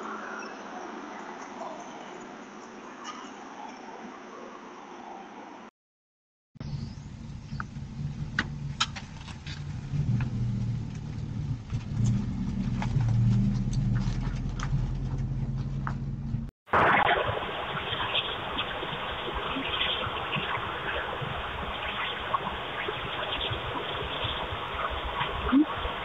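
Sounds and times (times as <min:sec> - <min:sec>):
vehicle engine running: 0:06.6 - 0:16.5
steady noisy hiss: 0:16.8 - 0:26.0.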